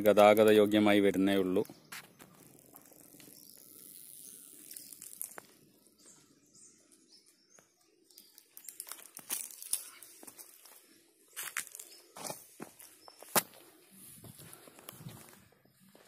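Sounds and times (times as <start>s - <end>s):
footsteps crunching on dry leaves: 8.7s - 16.0s.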